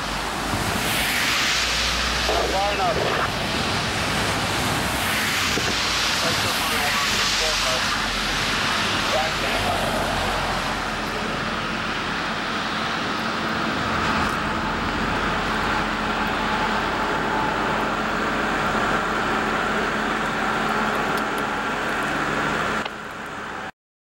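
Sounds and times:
diesel locomotives running: 0:00.0 - 0:23.7
traffic noise: 0:00.0 - 0:23.7.

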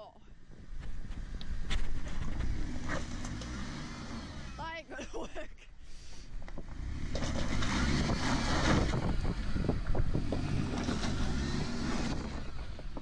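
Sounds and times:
wind on microphone: 0:06.4 - 0:13.0.

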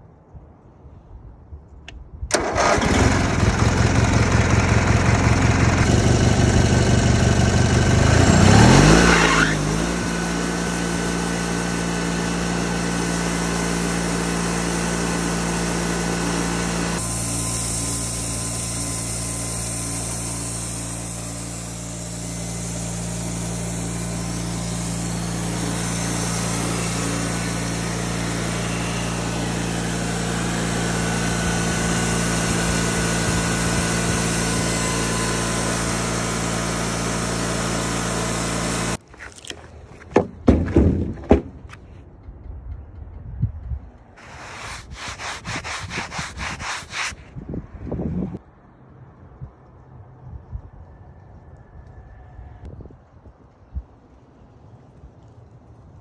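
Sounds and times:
sawmill engine running: 0:02.3 - 0:42.0, 0:43.8 - 0:47.3.

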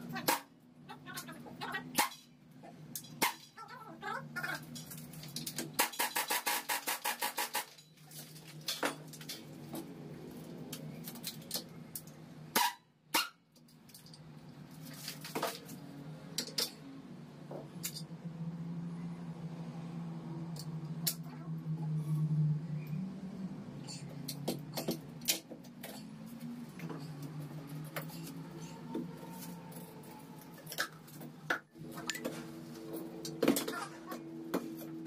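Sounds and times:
pneumatic impact wrench rattling: 0:05.7 - 0:07.8.

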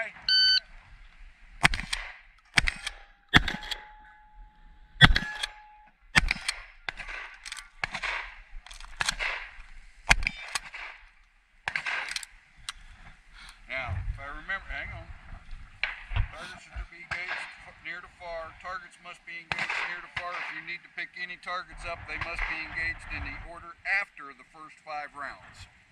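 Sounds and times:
shotgun shots: 0:01.6 - 0:04.0, 0:05.0 - 0:05.6, 0:06.2 - 0:11.0, 0:11.7 - 0:12.2, 0:19.5 - 0:20.6
steel plate ringing: 0:02.7 - 0:06.0.

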